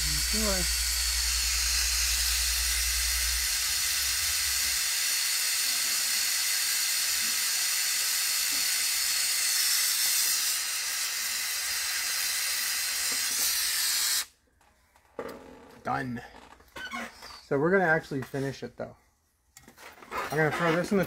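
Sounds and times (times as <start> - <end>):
gas torch hissing: 0.0 - 14.3.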